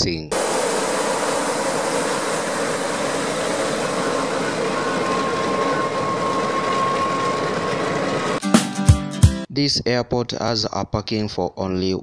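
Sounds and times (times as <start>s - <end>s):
propeller engines running: 0.3s - 8.4s
thin steady whine: 0.3s - 8.4s.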